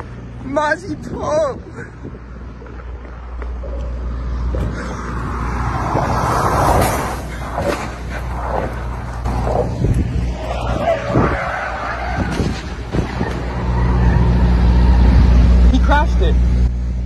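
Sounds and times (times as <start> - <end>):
tyres rushing over pavement: 2.4 - 15.0.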